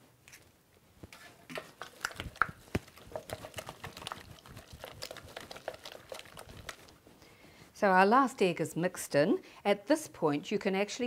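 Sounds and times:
wooden spoon beating dough: 1.1 - 7.2.

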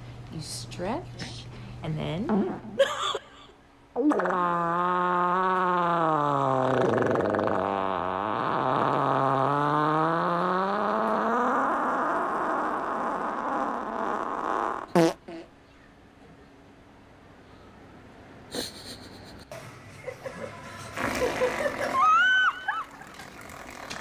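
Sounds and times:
dog farting: 4.0 - 15.5, 21.0 - 24.0.

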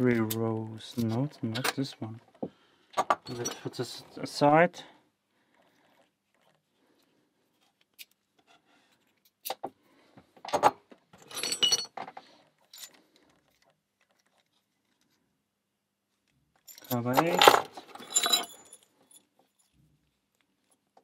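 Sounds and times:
metal keys clinking and jangling: 16.6 - 19.8.

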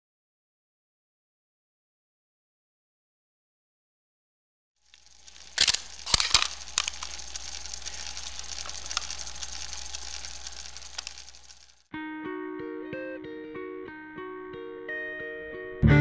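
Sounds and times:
light crackle: 4.8 - 11.9
projector hum and hiss: 4.9 - 11.8.

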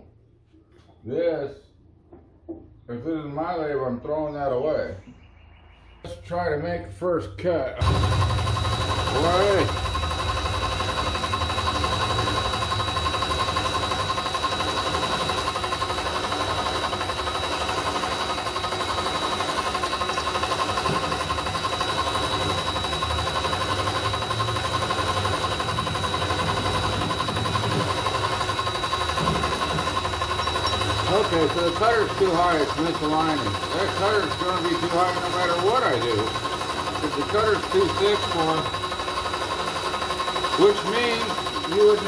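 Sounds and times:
lathe motor whining: 7.8 - 42.0.

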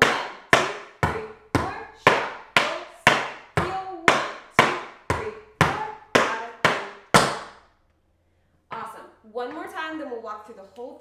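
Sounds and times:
tap shoes on wooden board: 0.0 - 7.6.

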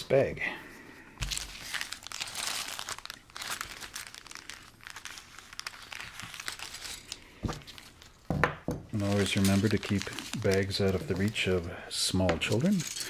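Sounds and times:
plastic bag crinkling: 1.2 - 8.3, 8.9 - 13.0.

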